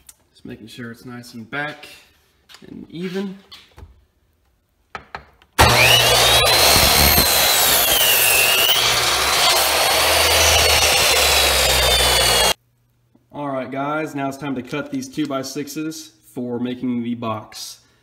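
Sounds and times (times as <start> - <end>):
chop saw motor whining: 5.6 - 12.6
saw blade cutting through board: 5.6 - 12.6.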